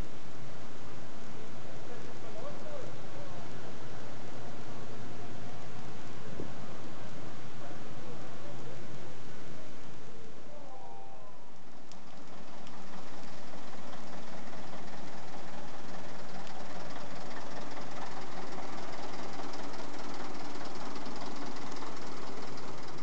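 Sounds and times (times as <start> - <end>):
diesel truck engine clattering: 12.0 - 23.0.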